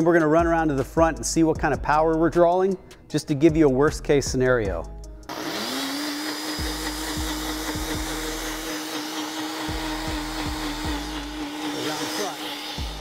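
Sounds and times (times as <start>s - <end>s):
blender motor whirring: 5.3s - 13.0s.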